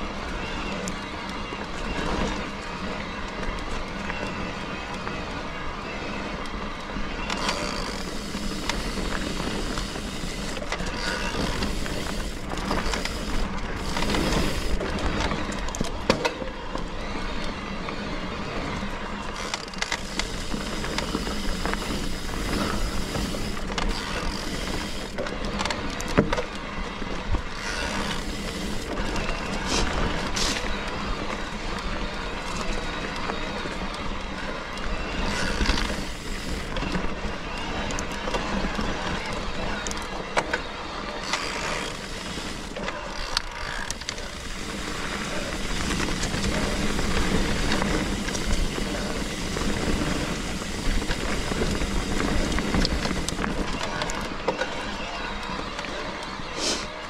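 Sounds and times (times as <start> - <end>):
tyre and wind noise: 0.0 - 57.0
bike rattling and knocking: 7.2 - 16.4, 19.3 - 33.9, 41.2 - 55.0.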